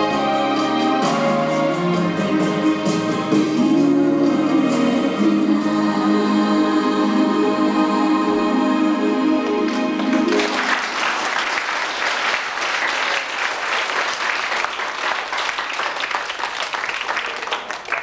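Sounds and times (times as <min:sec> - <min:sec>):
children applauding: 0:09.7 - 0:18.0.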